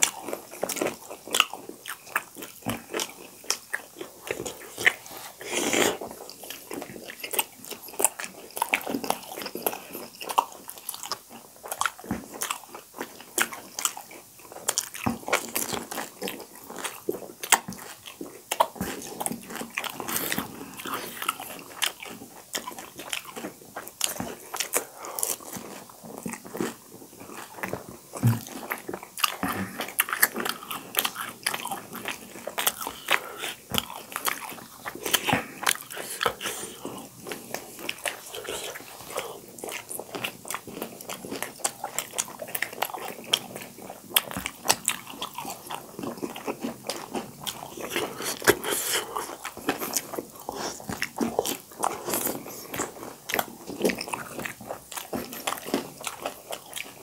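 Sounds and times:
people chewing: 0.0 - 57.0.

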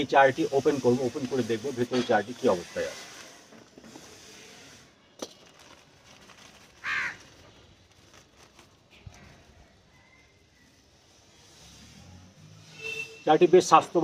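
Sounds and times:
plastic wrapping rustling: 0.1 - 10.0
crow cawing: 6.8 - 7.3.

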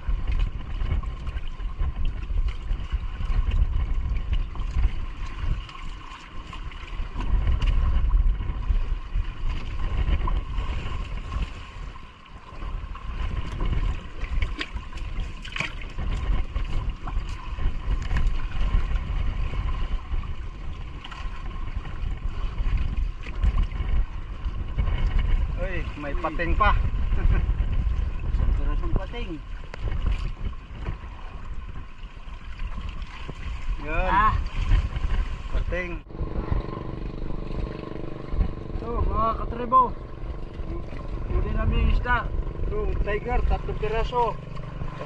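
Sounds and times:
water splashing and sloshing: 0.0 - 45.0
wind buffeting microphone: 0.0 - 45.0
fish thrashing in water: 13.3 - 20.3.

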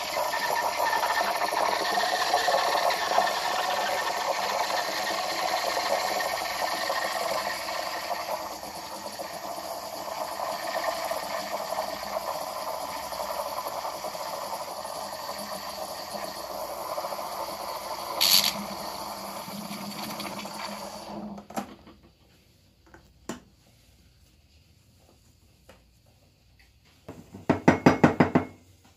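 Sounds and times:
steam wand frothing milk: 0.0 - 21.6.

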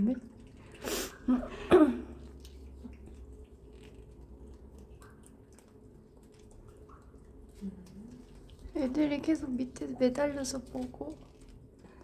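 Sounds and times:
cat licking and chewing: 0.1 - 1.3, 2.2 - 12.0
wet smacking and clicks: 2.2 - 8.8.

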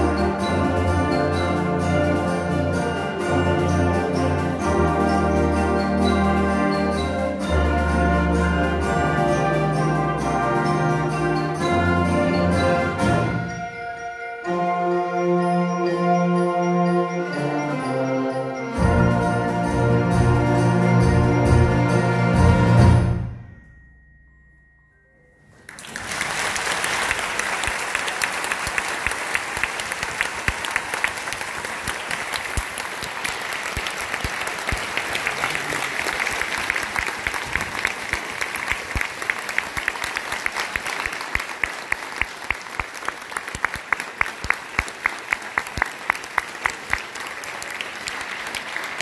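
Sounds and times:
audience applauding: 25.6 - 49.0.

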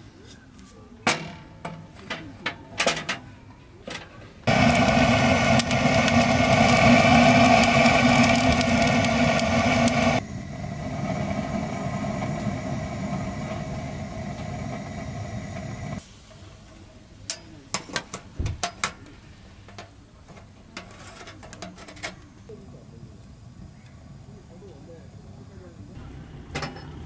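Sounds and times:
gas torch flame hissing: 4.5 - 17.9.

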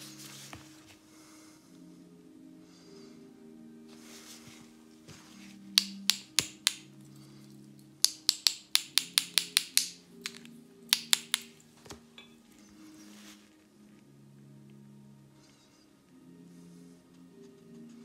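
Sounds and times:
soft background music: 0.0 - 18.0
paintbrush tapping clicks: 5.8 - 6.9, 8.0 - 11.6.

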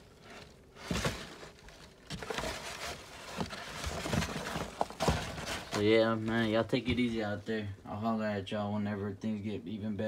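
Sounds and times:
cardboard egg flats rustling and scraping: 0.0 - 7.4.

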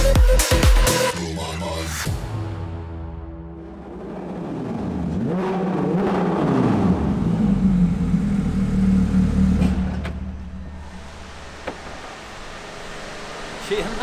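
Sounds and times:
car engine revving: 3.5 - 14.0.

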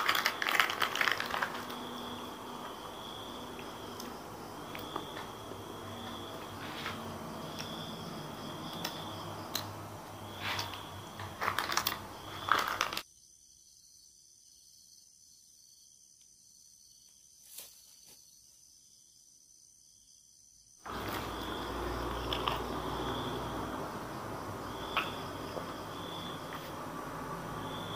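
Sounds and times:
snack packets crinkling: 0.0 - 2.2, 10.5 - 13.0
cricket chirps: 0.0 - 27.9.

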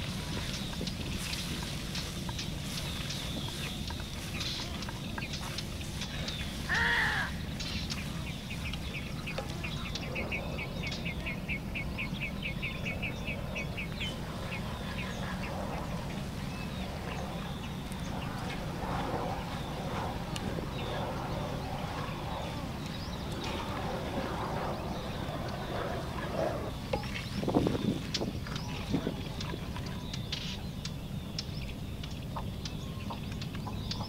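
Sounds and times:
low background noise: 0.0 - 34.0
loud animal call: 6.7 - 7.4.

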